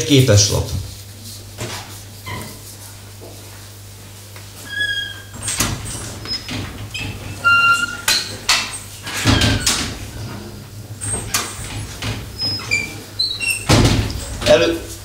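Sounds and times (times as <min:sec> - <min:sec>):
short high squeaks: 0:04.6 - 0:08.4.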